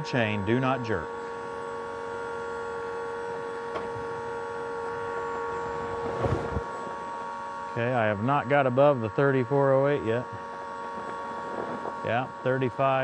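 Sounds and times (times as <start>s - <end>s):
electric motor humming with whine: 0.0s - 13.0s.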